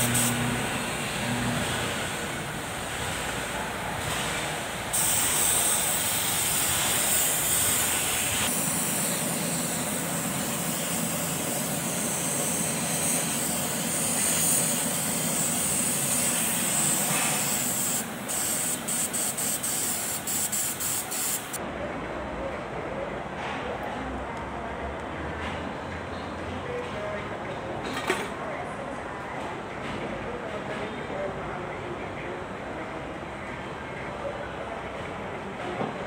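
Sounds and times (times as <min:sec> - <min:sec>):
paint spray gun hissing: 0:00.0 - 0:00.5, 0:04.9 - 0:21.6.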